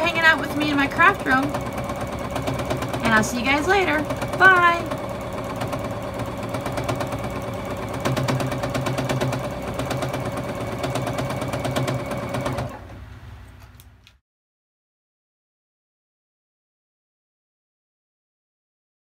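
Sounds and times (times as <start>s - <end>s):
sewing machine stitching: 0.0s - 13.0s.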